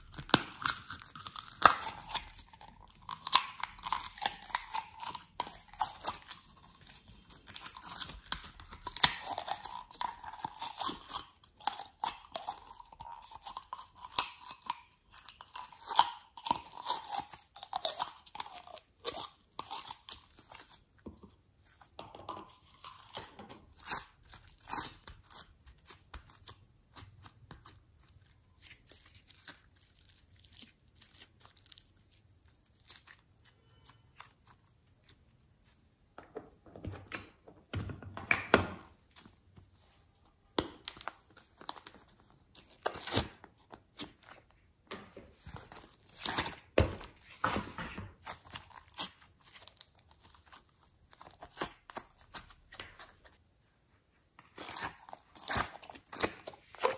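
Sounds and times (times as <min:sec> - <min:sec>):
slime squelching and crackling: 0:00.0 - 0:35.4, 0:48.1 - 0:53.4, 0:54.4 - 0:56.9.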